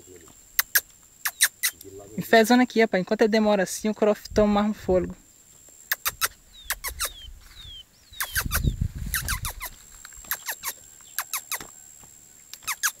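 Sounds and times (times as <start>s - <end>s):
low wind rumble: 3.6s - 5.3s, 6.4s - 9.7s
finch chip calls: 6.0s - 11.7s.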